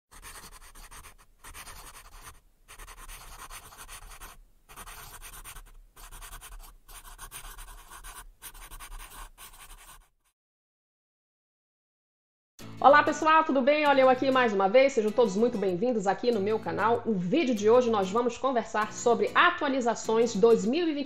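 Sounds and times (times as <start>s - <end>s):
scratchy writing strokes: 0.1s - 10.3s.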